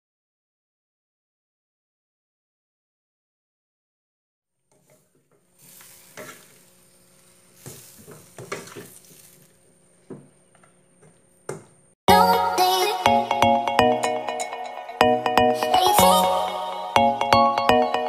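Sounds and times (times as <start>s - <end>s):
spatula scraping and knocking pan: 4.7s - 10.4s
food sizzling in a pan: 4.8s - 9.6s.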